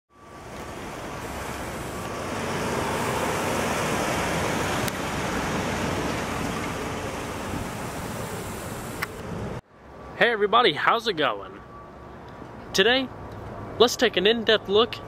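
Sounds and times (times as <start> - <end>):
car driving slowly past: 0.1 - 9.6.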